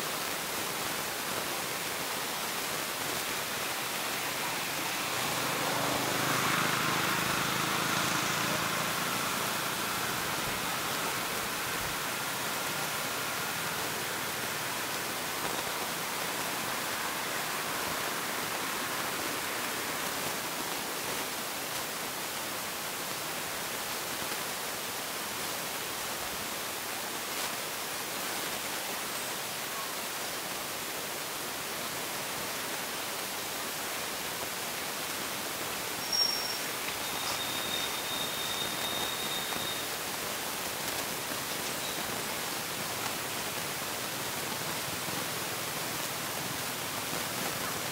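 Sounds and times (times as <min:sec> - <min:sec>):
outdoor background hiss: 0:00.0 - 0:47.9
thin steady high tone: 0:36.0 - 0:40.0.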